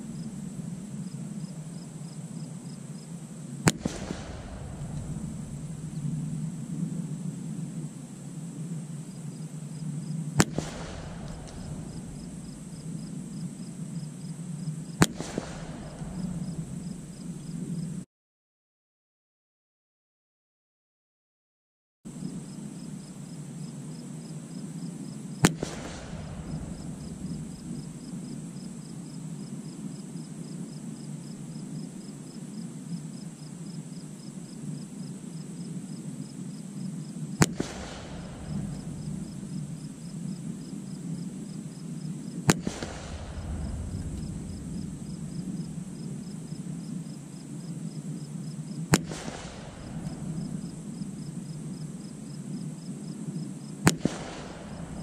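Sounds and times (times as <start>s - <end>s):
insects chirping: 0.0s - 18.0s, 22.1s - 55.0s
rifle shots with echo: 3.6s - 7.0s, 10.3s - 13.5s, 14.8s - 17.6s, 25.4s - 28.9s, 37.4s - 40.4s, 42.5s - 46.6s, 48.7s - 51.4s, 53.8s - 55.0s.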